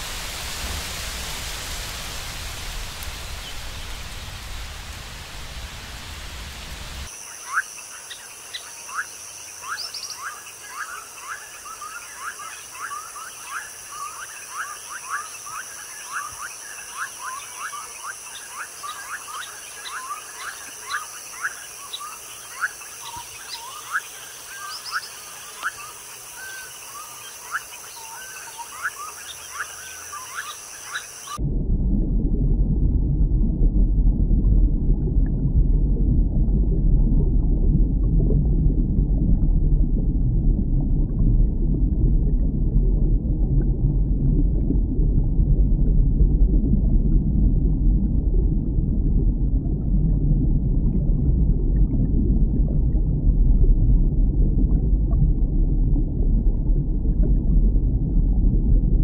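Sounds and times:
rushing hiss: 0:00.0 - 0:07.1.

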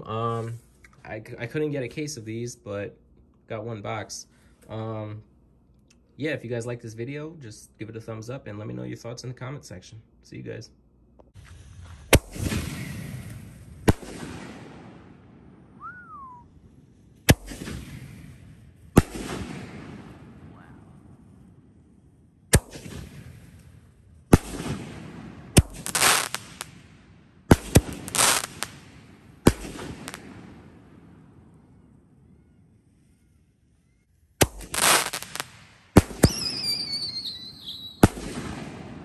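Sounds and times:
dense crackling: 0:27.5 - 0:30.3.

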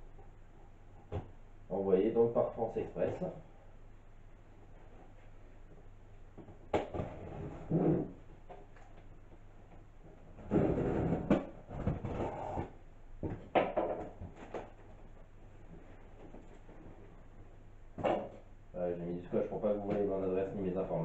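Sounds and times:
knocks and scrapes on cardboard: 0:10.4 - 0:13.4.

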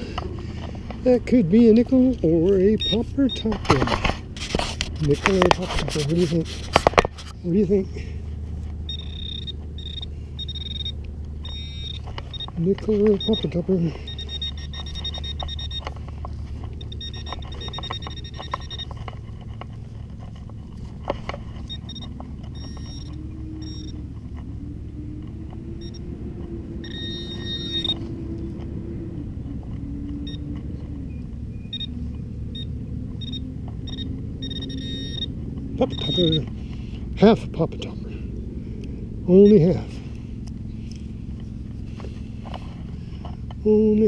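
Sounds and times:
steady low rumble: 0:00.0 - 0:44.0
metal detector high buzzing tone: 0:02.7 - 0:03.8, 0:08.9 - 0:16.0, 0:16.7 - 0:19.0, 0:21.6 - 0:24.0, 0:25.8 - 0:26.1, 0:26.7 - 0:28.1, 0:31.1 - 0:36.4.

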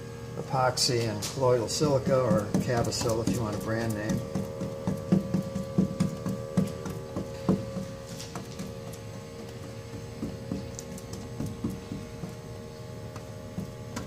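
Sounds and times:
steady hum: 0:00.0 - 0:14.0
brush taps and scrapes: 0:02.0 - 0:12.4.

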